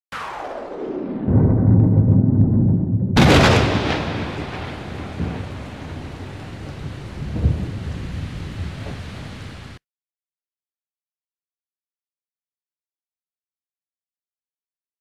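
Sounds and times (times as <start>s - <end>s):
loud crash: 0.1s - 5.9s
low rumble: 0.3s - 8.0s.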